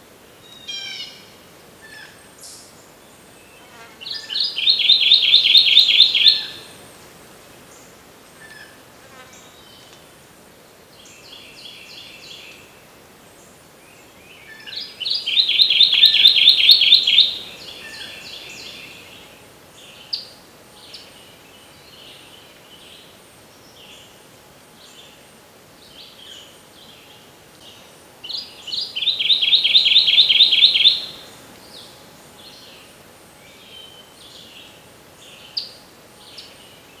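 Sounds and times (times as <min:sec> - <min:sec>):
warbler singing rolling phrase: 0:04.0 - 0:06.8, 0:14.6 - 0:19.2, 0:28.2 - 0:32.8.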